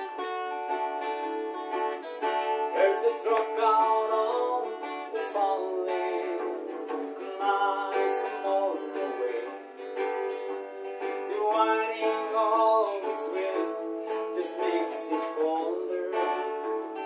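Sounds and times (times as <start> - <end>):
acoustic guitar strumming: 0.0 - 17.0
man singing: 2.7 - 10.1, 11.2 - 17.0.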